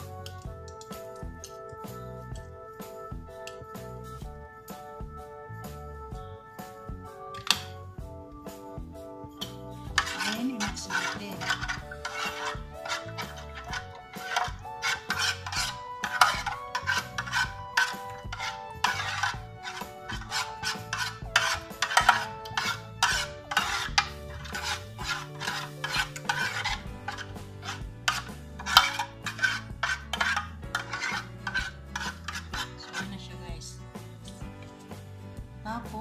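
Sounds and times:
soft background music: 0.0s - 36.0s
metal spoon scraping a pan: 7.4s - 7.8s, 9.4s - 33.4s.

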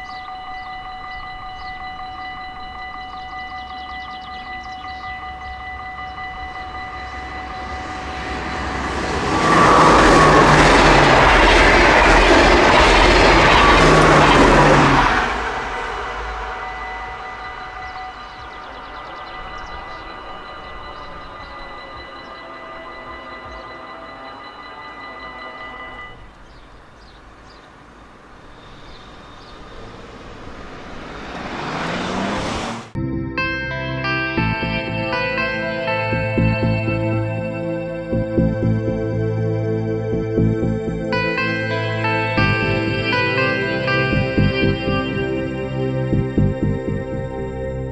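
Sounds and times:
faint bird chirps: 0.0s - 8.1s, 16.1s - 30.1s
level crossing bell ringing: 0.0s - 11.0s, 14.6s - 26.7s
train passing at speed: 0.0s - 33.0s, 34.4s - 47.9s.

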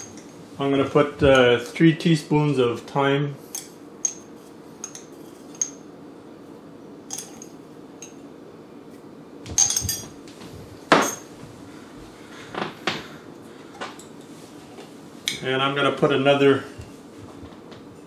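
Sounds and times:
utensils clinking against dishes: 0.0s - 0.4s, 3.5s - 5.9s, 7.1s - 8.2s, 9.5s - 10.2s, 10.9s - 11.3s.

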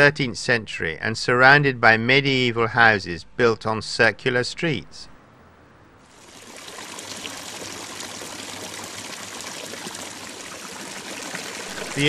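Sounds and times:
water pouring into a pool: 6.1s - 12.0s.

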